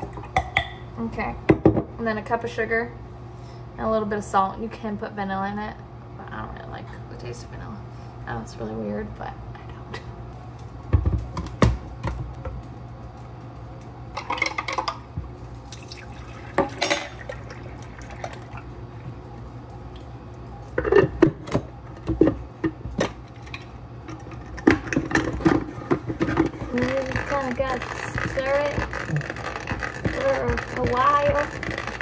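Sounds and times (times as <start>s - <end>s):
liquid pouring from jar: 15.7s - 18.7s.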